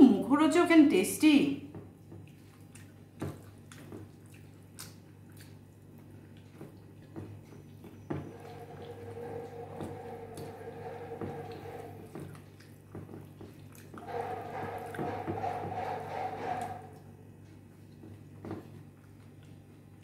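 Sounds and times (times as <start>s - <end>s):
fingers squishing food: 2.1s - 10.1s.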